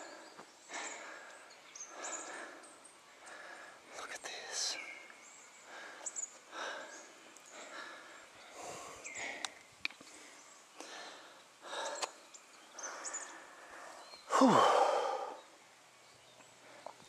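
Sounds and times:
person breathing hard: 0.0s - 3.8s, 5.6s - 12.2s, 12.8s - 15.5s
faint clicks: 9.3s - 10.2s, 10.8s - 12.2s.

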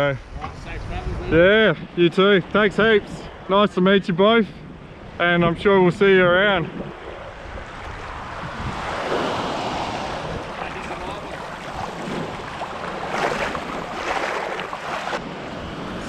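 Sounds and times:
water splashing and sloshing: 6.6s - 15.5s
small waves washing over rock: 8.8s - 15.2s.

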